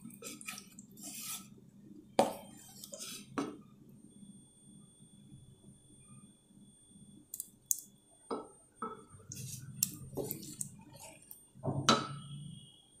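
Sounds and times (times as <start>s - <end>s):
spatula stirring thick curry: 0.0s - 1.6s, 2.4s - 3.4s, 9.3s - 11.4s.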